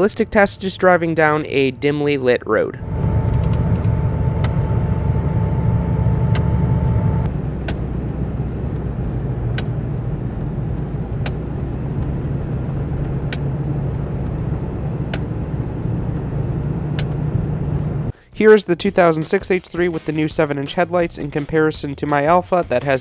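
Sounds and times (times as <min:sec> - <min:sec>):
steady high whine: 0:00.0 - 0:18.1
road and engine rumble: 0:00.0 - 0:18.3.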